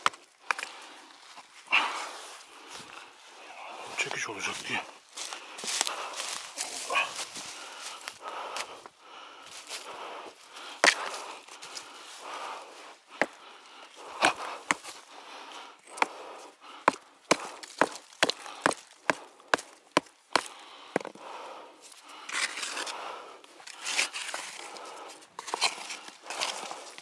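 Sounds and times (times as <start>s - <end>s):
pick hammer striking rock: 14.2s - 14.9s, 16.8s - 21.2s
trowel scraping dirt: 22.2s - 27.0s.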